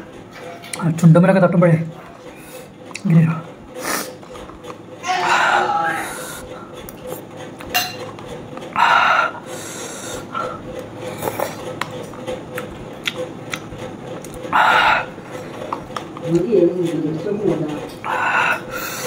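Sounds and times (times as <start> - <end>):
slurping noodles: 8.6 - 13.6.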